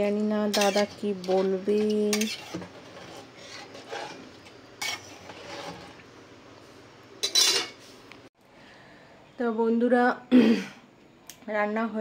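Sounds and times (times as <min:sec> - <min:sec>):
ladle scraping metal pot: 0:00.4 - 0:06.0, 0:07.2 - 0:07.8
ladle clinking on pot: 0:07.2 - 0:07.8.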